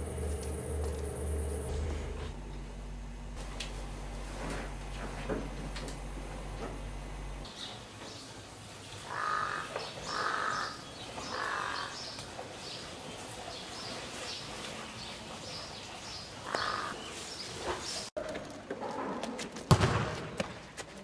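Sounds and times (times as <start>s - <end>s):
crow cawing: 9.1s - 12.0s, 16.5s - 17.0s
small birds chirping: 9.1s - 18.1s.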